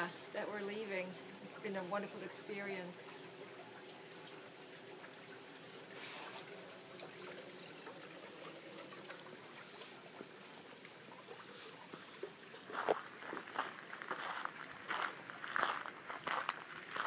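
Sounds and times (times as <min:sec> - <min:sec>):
faint outdoor hiss: 0:00.0 - 0:17.0.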